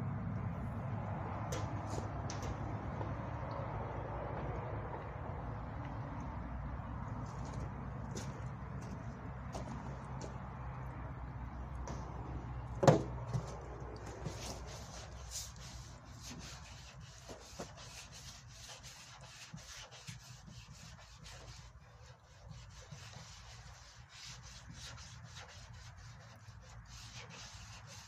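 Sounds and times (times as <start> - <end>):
sanding block rubbing a panel: 14.2 - 28.0.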